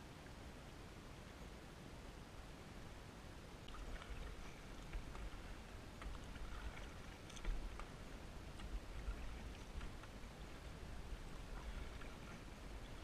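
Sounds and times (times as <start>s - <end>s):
kayak paddle splashing: 3.6s - 13.0s
water trickling: 3.6s - 13.0s.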